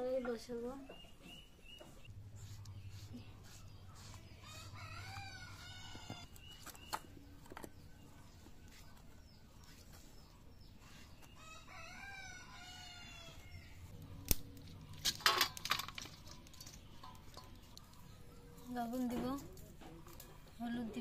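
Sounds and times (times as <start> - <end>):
rooster crowing: 4.4 - 6.3, 11.4 - 13.6.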